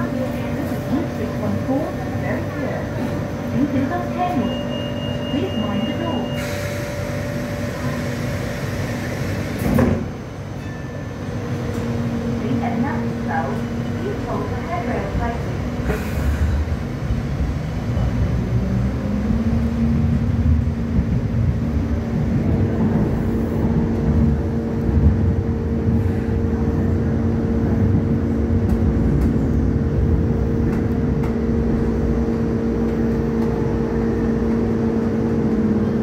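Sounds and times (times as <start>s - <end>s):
train wheels rumbling on track: 0.0s - 36.0s.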